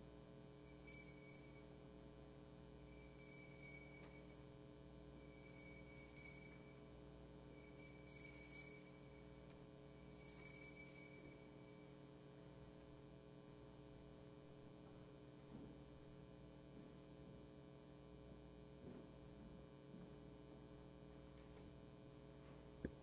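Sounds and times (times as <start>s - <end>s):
electrical hum: 0.0s - 17.0s
faint high-pitched tones: 0.5s - 12.4s.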